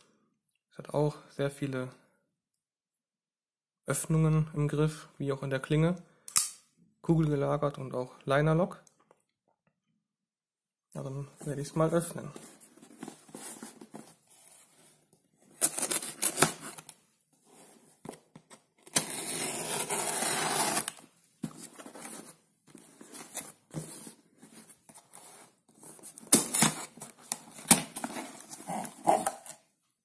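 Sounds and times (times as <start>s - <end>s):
cardboard flaps rustling: 12.4s - 15.0s
knife slitting packing tape: 15.6s - 16.9s, 18.9s - 21.0s
tape tearing scrape: 15.6s - 16.9s, 18.8s - 21.1s.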